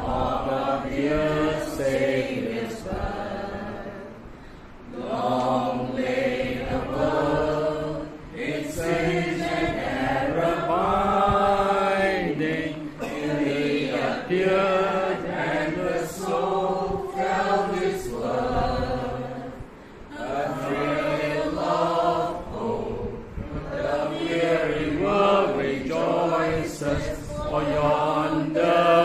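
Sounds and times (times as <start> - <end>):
group singing together: 0.0 - 29.0.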